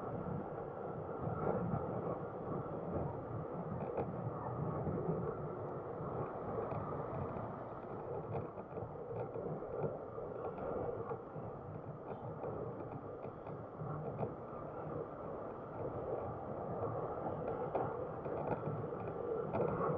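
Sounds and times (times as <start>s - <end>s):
wind noise: 0.0s - 19.9s.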